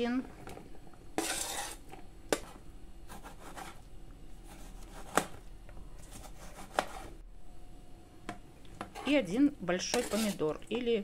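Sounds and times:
vegetables scraped off cutting board: 1.2s - 1.8s, 9.9s - 10.4s.

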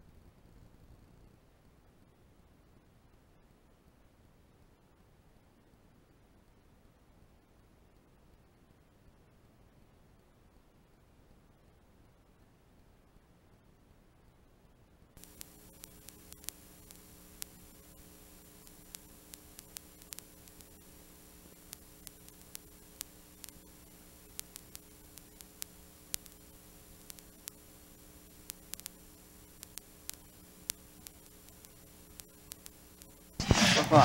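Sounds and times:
low electrical hum: 0.0s - 34.0s
sharp static clicks: 15.1s - 34.0s.

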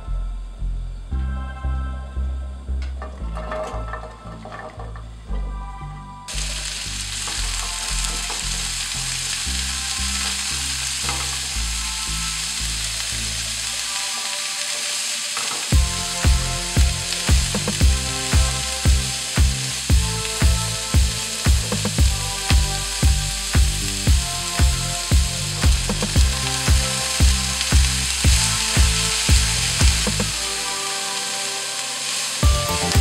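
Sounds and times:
background music with bass: 0.0s - 14.2s, 15.7s - 31.2s, 32.4s - 33.0s
vegetables sizzling in a pan: 6.3s - 33.0s.

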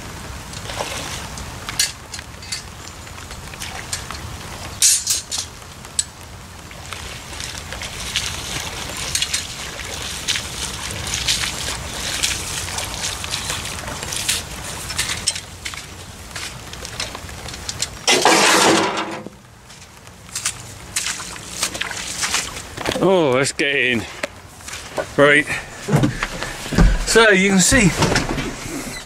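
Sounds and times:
boots splashing through water: 5.5s - 18.7s, 19.5s - 23.5s, 24.3s - 28.9s.

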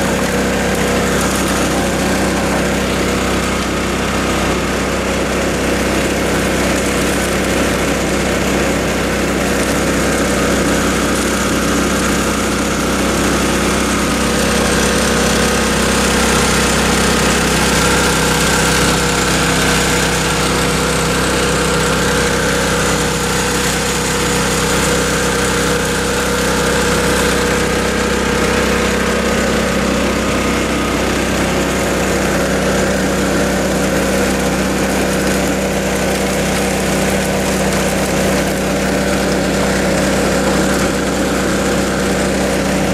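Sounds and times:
small gas engine running: 0.0s - 42.9s
water washing down sluice: 0.0s - 42.9s.

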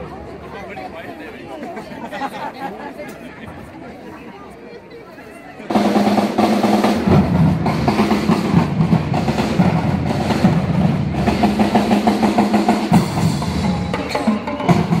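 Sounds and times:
drum troupe playing: 5.7s - 15.0s.

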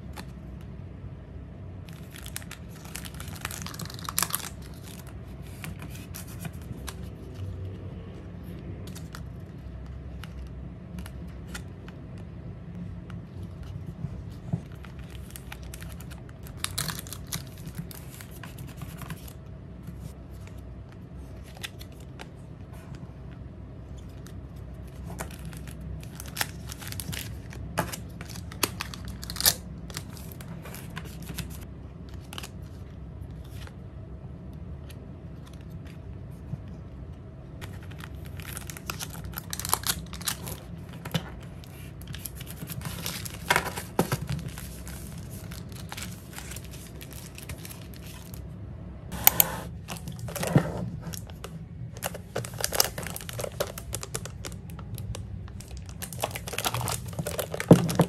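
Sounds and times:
plastic sleeves crinkling: 1.8s - 7.6s, 13.3s - 20.1s, 37.6s - 48.5s, 49.3s - 58.0s.

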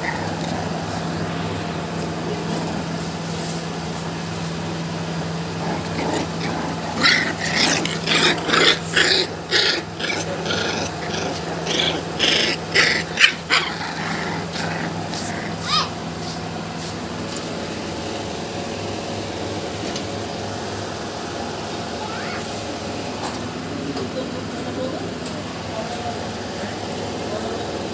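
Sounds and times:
puppies yapping and growling: 0.0s - 1.3s, 5.4s - 16.4s, 21.9s - 22.6s
steady low hum: 0.0s - 27.9s.

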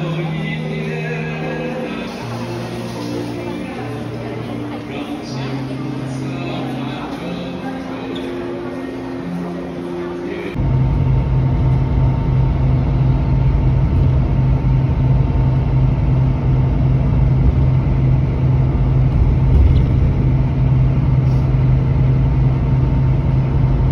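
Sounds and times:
vehicle driving rumble: 10.5s - 23.9s.

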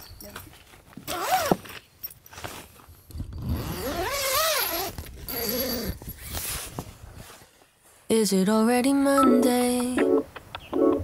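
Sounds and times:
zipper being pulled: 1.1s - 1.6s, 3.4s - 6.7s.

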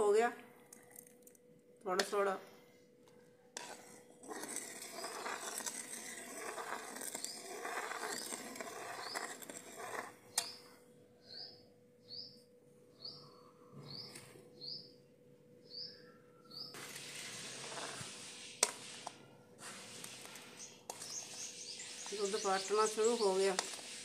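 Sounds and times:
bird chirping: 10.3s - 15.0s, 15.6s - 16.8s, 20.5s - 23.6s
steady hiss: 16.8s - 24.0s.

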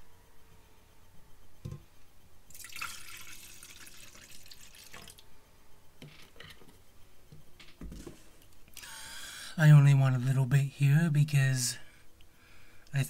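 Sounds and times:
cider pouring into a glass: 2.5s - 5.2s.

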